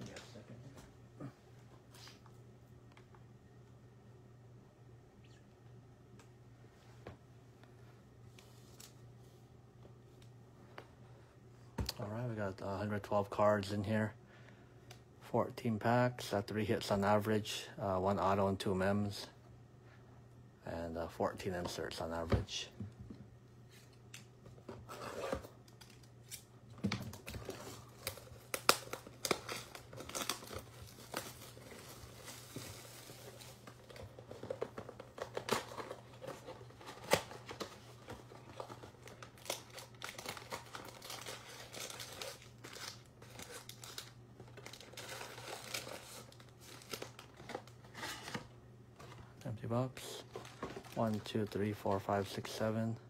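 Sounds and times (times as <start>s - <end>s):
plastic wrapping crinkling and tearing: 27.1s - 48.5s, 50.1s - 52.0s
cardboard rustling: 50.2s - 51.2s.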